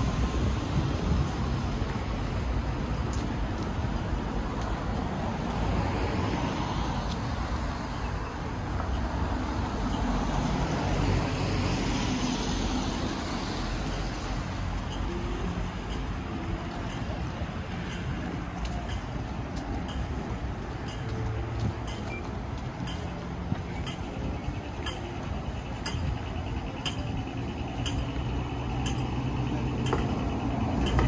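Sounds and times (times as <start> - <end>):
wind buffeting microphone: 0.0 - 12.3
road traffic rushing: 0.0 - 31.0.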